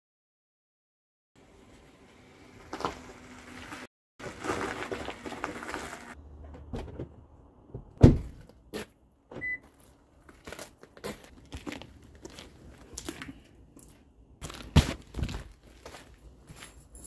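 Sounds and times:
heavy thump: 0:07.8 - 0:08.4.

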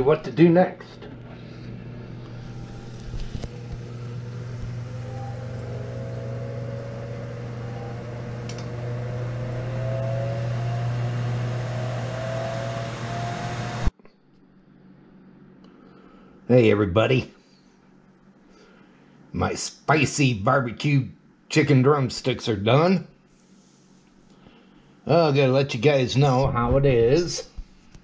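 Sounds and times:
faint rising whine: 0:00.0 - 0:13.9
grill fan whirring and humming: 0:00.0 - 0:13.9.

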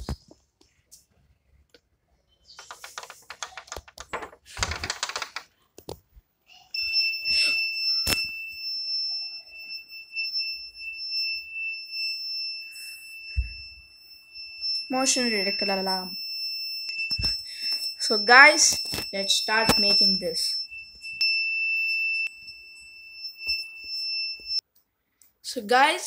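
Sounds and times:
high-pitched buzzer alarm tone: 0:06.8 - 0:24.6.

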